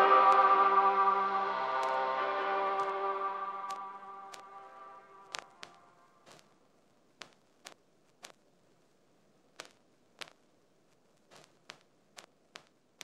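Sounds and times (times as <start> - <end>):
faint hiss: 0.0 - 13.0.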